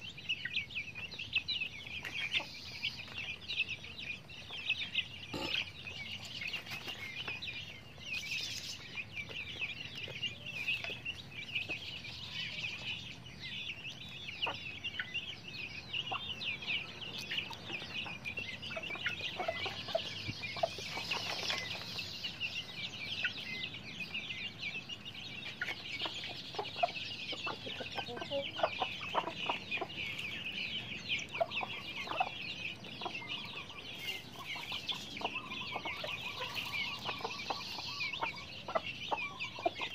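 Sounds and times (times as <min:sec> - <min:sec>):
chicks peeping: 0:00.0 - 0:39.9
hens clucking: 0:00.0 - 0:39.9.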